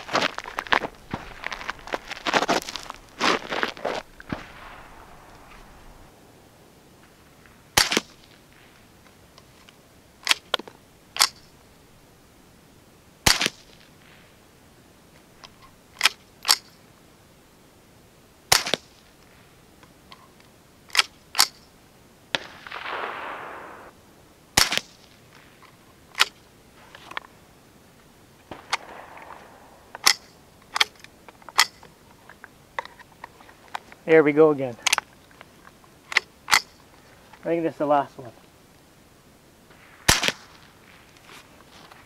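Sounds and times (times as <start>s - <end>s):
hissy rustling: 0.0s - 9.6s
rifle shots light cracks: 0.1s - 8.9s, 13.2s - 14.2s, 18.5s - 19.0s, 22.3s - 23.9s, 24.6s - 25.6s, 28.4s - 31.9s, 39.7s - 41.2s
rifle bolt clicks: 11.2s - 11.5s, 28.5s - 33.8s, 34.8s - 36.8s.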